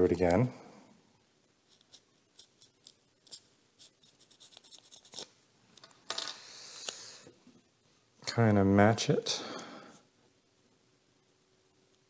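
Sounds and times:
tape scratching and ticking: 1.6 - 5.9.

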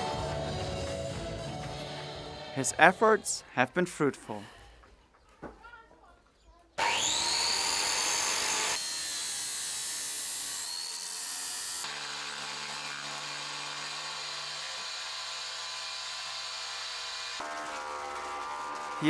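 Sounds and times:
angle grinder cutting steel: 6.8 - 19.0
table saw cutting wood: 6.8 - 19.0.

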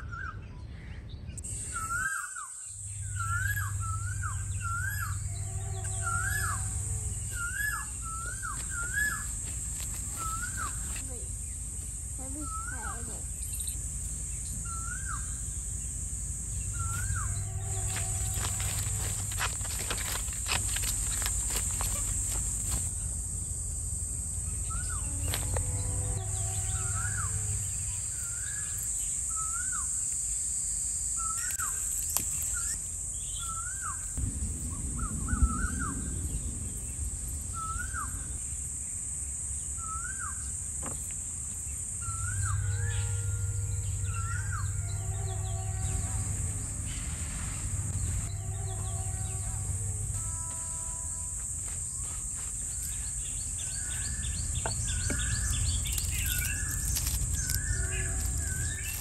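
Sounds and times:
bird rising call: 1.5 - 9.4.

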